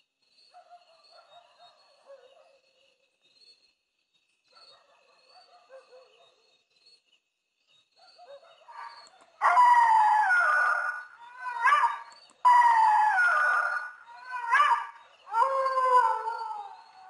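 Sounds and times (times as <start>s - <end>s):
dog howling: 9.4s - 17.0s.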